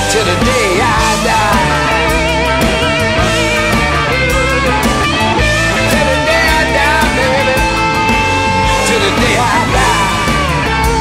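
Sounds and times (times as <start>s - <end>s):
electric blues band: 0.0s - 11.0s.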